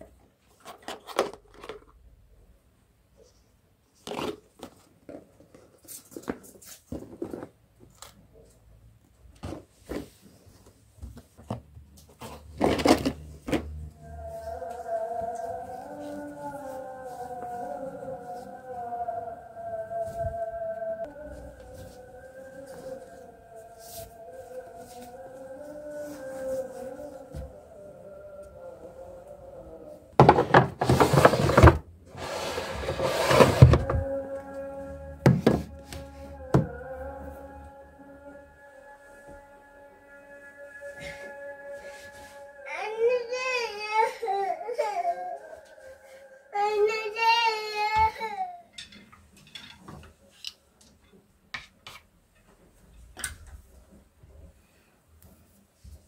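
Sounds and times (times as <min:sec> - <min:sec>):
baskets knocking down on shelf: 0:30.2 - 0:31.8
plastic baskets knocking: 0:30.2 - 0:31.9, 0:32.8 - 0:34.0, 0:35.2 - 0:35.8
plastic baskets rustling: 0:30.2 - 0:34.1.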